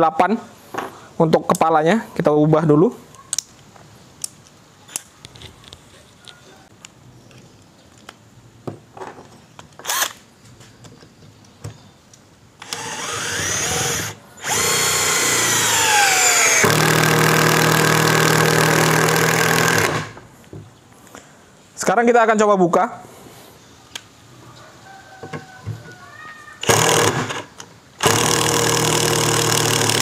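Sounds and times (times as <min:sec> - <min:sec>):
impact driver motor whining: 0:12.6 - 0:20.1.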